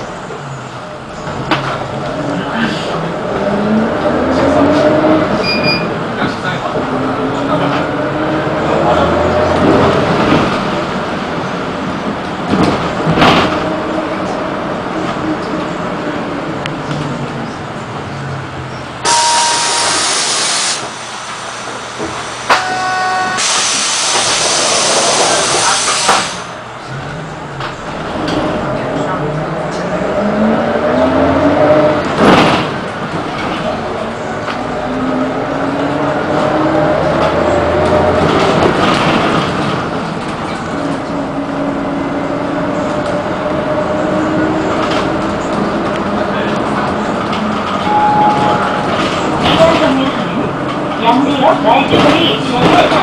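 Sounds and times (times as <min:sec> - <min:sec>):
bus engine drone: 0:00.0 - 0:53.0
road noise: 0:00.0 - 0:53.0
brief ringing tone: 0:19.1 - 0:20.0, 0:47.8 - 0:48.8
compressed air hissing: 0:23.4 - 0:26.4.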